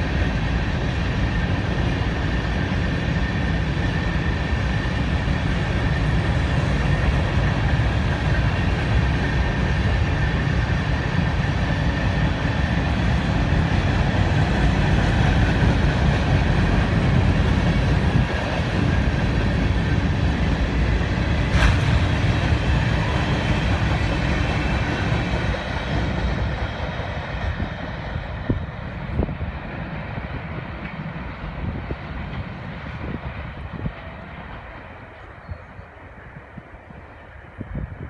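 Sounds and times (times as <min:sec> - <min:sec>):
train wheels rumbling and clattering: 0:00.0 - 0:38.0.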